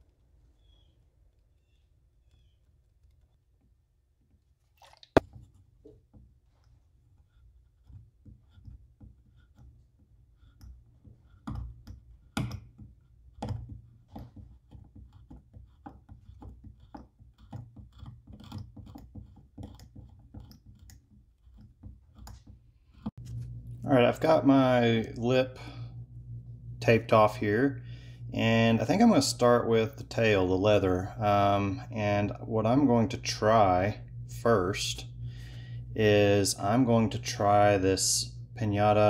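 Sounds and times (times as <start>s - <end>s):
hobby knife clicking on wood: 14.7s - 23.1s.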